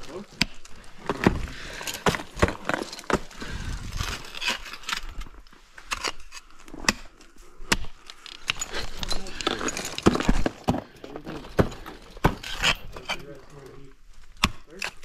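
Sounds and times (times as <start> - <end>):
climbing gear striking ice: 0.4 - 7.1, 7.7 - 13.4.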